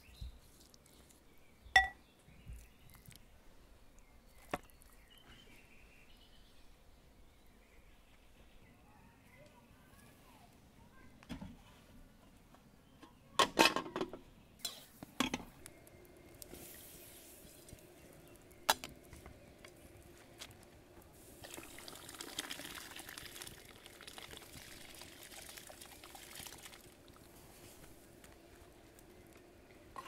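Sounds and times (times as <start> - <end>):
rice and water pouring into pot: 21.3 - 27.4.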